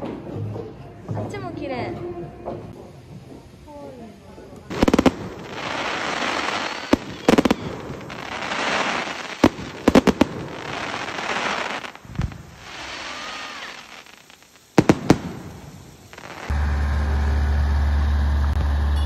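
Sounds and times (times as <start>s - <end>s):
fireworks crackling: 0.0s - 19.0s
fireworks shells bursting: 4.7s - 16.7s.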